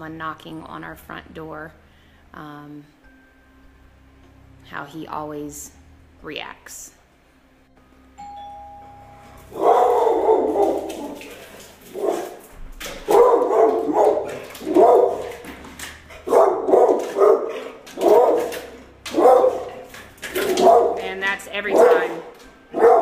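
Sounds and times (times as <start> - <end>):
two-note doorbell chime: 7.9 - 9.6
dog barking loudly: 9.5 - 11.3, 11.9 - 12.4, 13.0 - 15.5, 16.1 - 23.0.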